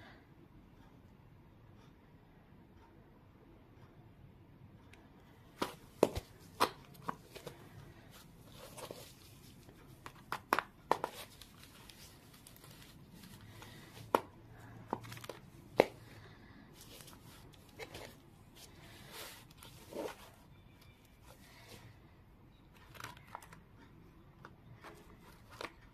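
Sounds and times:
paper boxes tapping and clicking: 5.5s - 7.8s, 8.5s - 16.1s.

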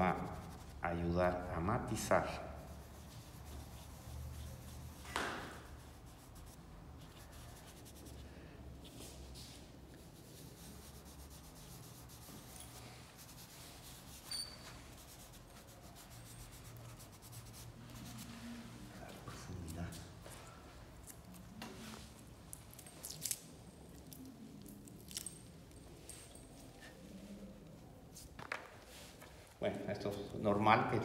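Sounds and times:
pastel scratching on paper: 0.0s - 1.5s, 2.2s - 18.9s.

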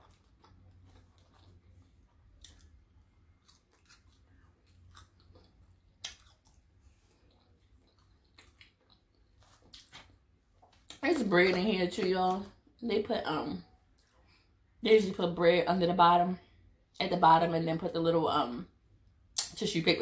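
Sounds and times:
chewing fried food: 0.0s - 12.8s.

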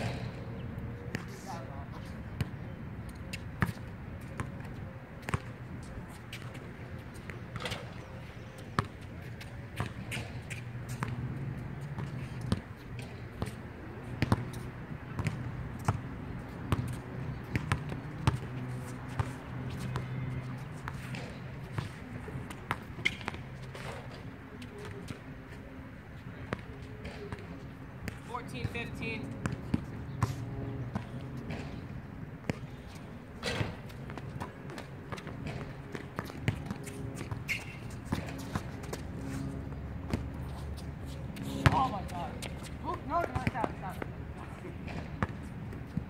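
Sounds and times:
steady low hum: 0.0s - 46.0s
basketball bouncing: 14.2s - 16.1s, 16.7s - 18.5s, 43.2s - 43.8s, 44.9s - 46.0s.

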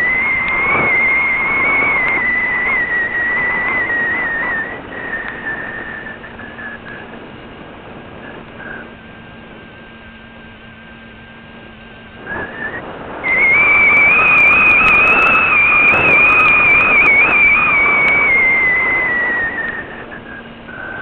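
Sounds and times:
model aircraft motor whine: 0.0s - 21.0s
wind rushing over microphone: 0.0s - 21.0s.

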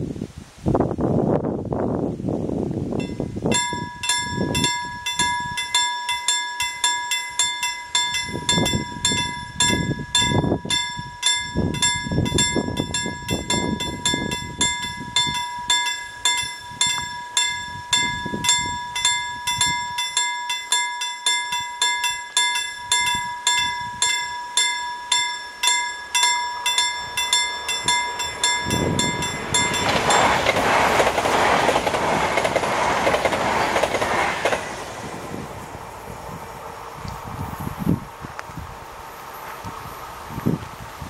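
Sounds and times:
level crossing warning bell: 3.0s - 32.3s.

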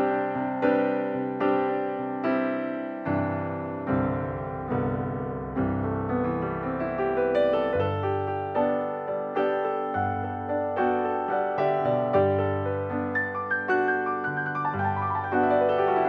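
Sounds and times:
slow piano notes and chords: 0.0s - 16.0s.

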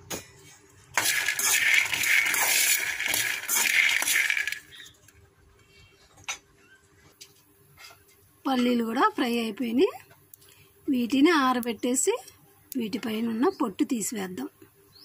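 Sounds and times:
peanuts rattling in metal pan: 0.9s - 4.9s.

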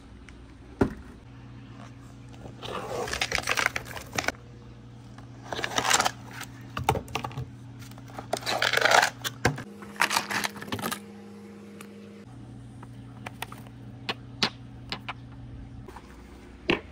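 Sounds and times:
low hum: 0.0s - 16.9s
billiard balls clicking: 14.0s - 15.4s.

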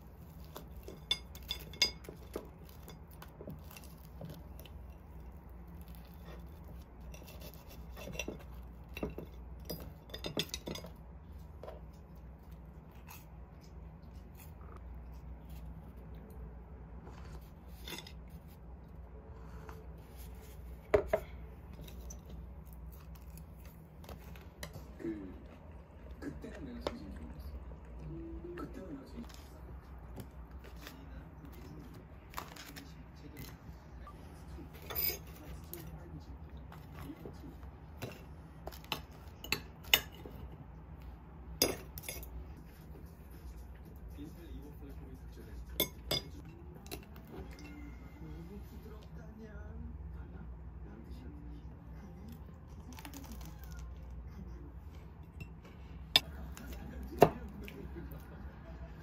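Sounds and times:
low room hum: 0.0s - 59.0s.

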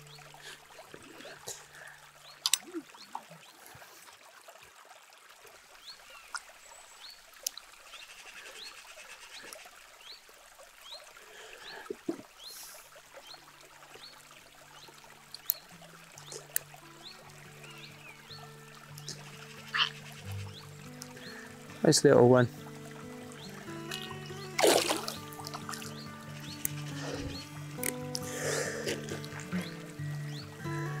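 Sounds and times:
trickling water: 0.0s - 31.0s
bird chirping: 14.8s - 21.6s, 23.4s - 28.0s, 29.5s - 30.8s
music with held notes: 16.2s - 31.0s.

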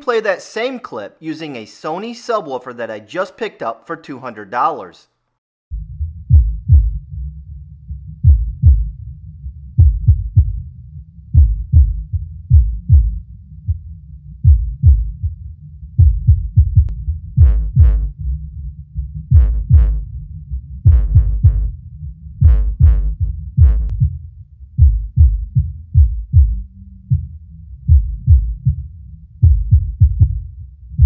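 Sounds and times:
deep punchy bass hits: 5.7s - 7.2s, 9.8s - 10.6s, 16.0s - 18.2s, 19.3s - 20.1s, 20.8s - 21.7s, 22.4s - 24.2s.

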